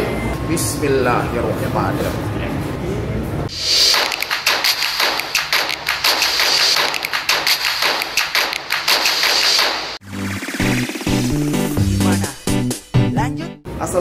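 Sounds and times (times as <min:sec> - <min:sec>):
music: 0:03.6 - 0:14.0
rapid taps and thumps: 0:03.9 - 0:10.0.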